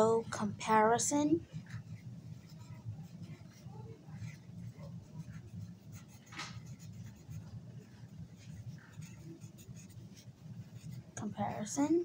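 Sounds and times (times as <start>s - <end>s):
steady low hum: 0.0s - 12.0s
felt-tip marker scratching: 0.7s - 12.0s.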